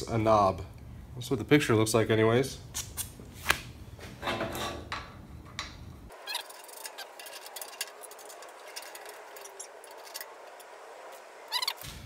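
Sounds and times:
hands handling parts: 0:03.4 - 0:10.8.

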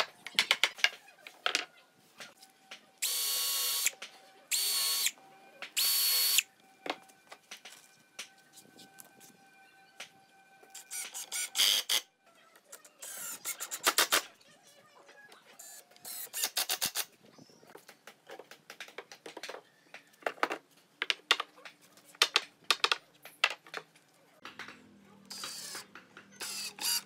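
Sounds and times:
cordless drill boring into wood: 0:03.0 - 0:03.9, 0:04.5 - 0:05.1, 0:25.3 - 0:25.8, 0:26.4 - 0:27.0
impact driver driving screws: 0:25.3 - 0:25.8, 0:26.4 - 0:27.0.

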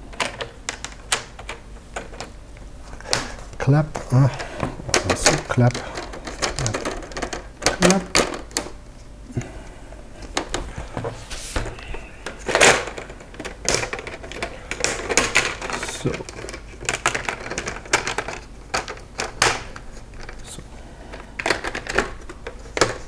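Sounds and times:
plastic clips clicking: 0:11.7 - 0:20.4.

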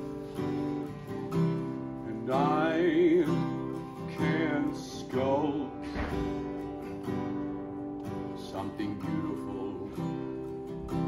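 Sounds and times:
strummed acoustic guitar: 0:00.0 - 0:11.0
man singing: 0:02.0 - 0:06.3, 0:08.3 - 0:10.6.

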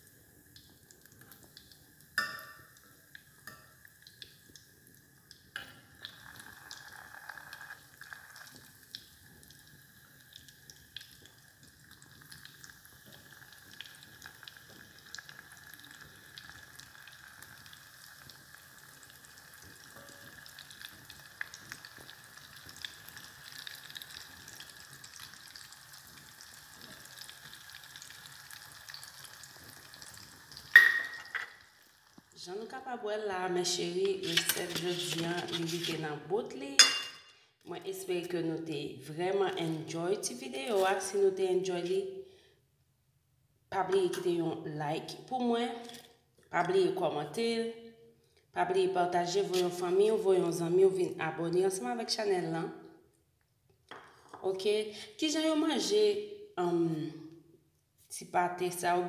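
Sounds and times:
food deep-frying in oil: 0:00.0 - 0:32.8, 0:33.7 - 0:37.2
metal spoon knocking a pot: 0:30.8 - 0:31.5, 0:36.8 - 0:37.2.

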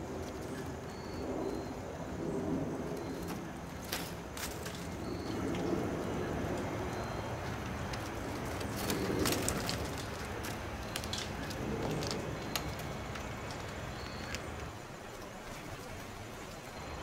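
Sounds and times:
outdoor background noise: 0:00.0 - 0:17.0
birds tapping on wooden railing: 0:06.4 - 0:16.2.

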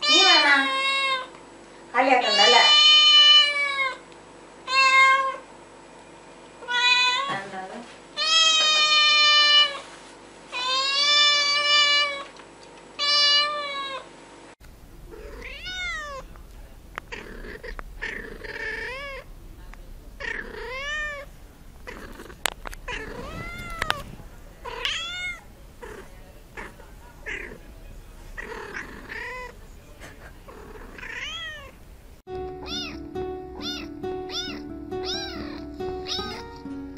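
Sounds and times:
kittens meowing: 0:15.0 - 0:31.8, 0:32.6 - 0:36.5.

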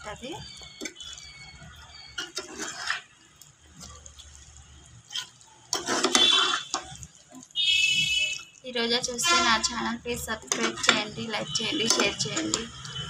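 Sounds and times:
spoon scraping and stirring pan: 0:00.4 - 0:13.0.

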